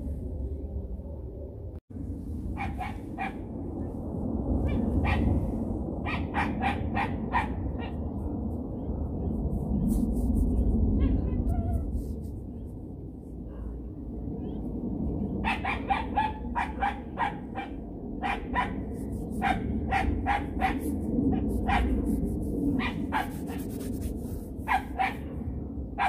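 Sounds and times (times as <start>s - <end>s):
dog barking: 2.6s - 3.4s, 4.6s - 5.4s, 6.0s - 8.2s, 15.4s - 22.2s, 22.8s - 23.8s, 24.6s - 25.3s.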